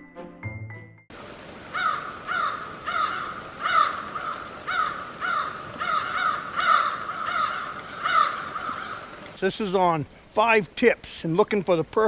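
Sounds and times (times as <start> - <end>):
bird giving harsh calls: 1.7 - 9.3.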